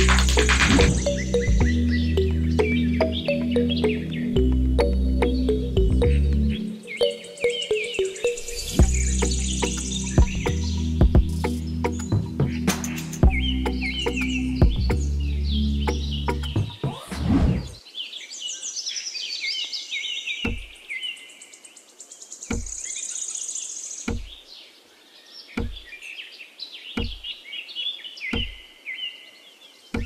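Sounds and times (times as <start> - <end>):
small birds chirping: 0.0 - 30.0
soft low thud: 20.5 - 20.7, 25.6 - 25.8, 27.0 - 27.2.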